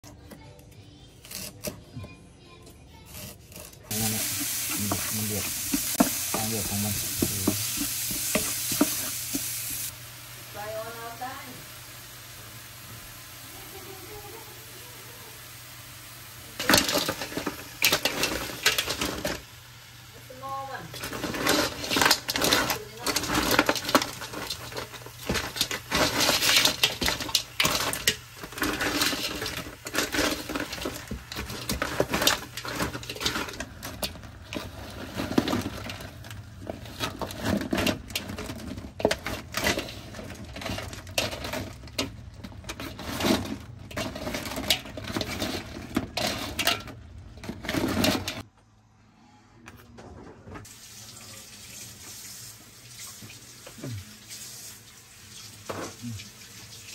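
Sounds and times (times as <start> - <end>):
crab shells clattering in metal pot: 3.1 - 9.9, 16.5 - 19.8, 20.4 - 48.4.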